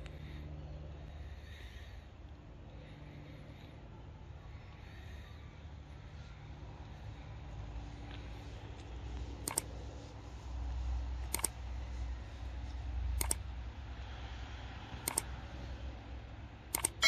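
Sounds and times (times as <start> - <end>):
steady low rumble: 0.0 - 16.7
sharp double clicks: 9.4 - 9.7, 11.3 - 11.6, 13.2 - 13.4, 15.0 - 15.3, 16.7 - 17.0.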